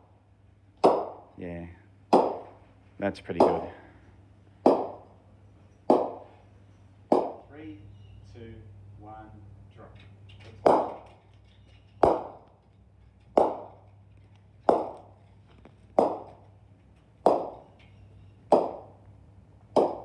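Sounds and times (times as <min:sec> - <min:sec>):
bowling balls clacking together: 0:10.1 - 0:20.0.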